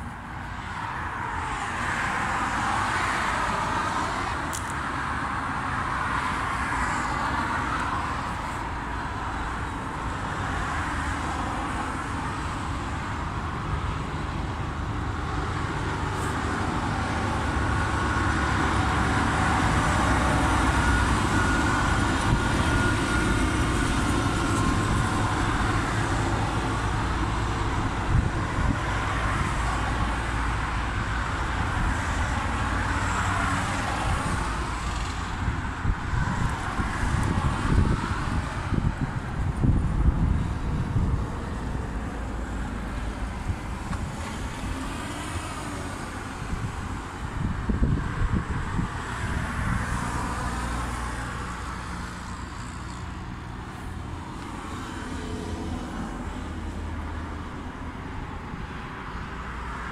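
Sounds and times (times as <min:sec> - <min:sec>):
strong wind buffeting microphone: 0:12.6 - 0:52.6.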